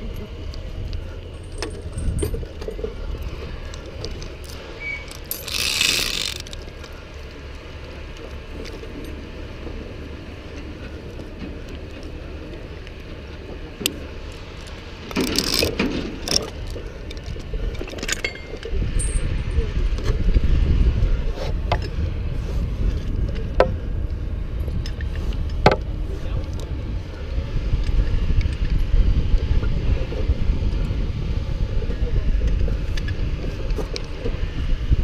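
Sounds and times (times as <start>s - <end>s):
chain clinking and jangling: 5.1s - 6.5s, 18.0s - 19.3s.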